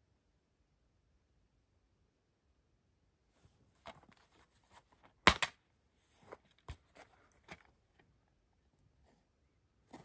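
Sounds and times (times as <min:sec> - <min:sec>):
plastic case snapping open: 0:05.3 - 0:05.6.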